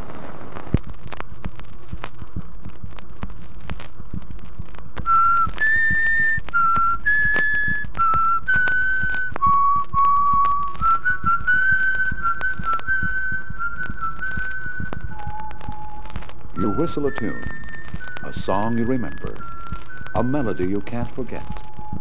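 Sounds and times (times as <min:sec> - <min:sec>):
record surface hiss and crackle: 0:00.0 - 0:22.0
person whistling a slow melody: 0:05.0 - 0:22.0.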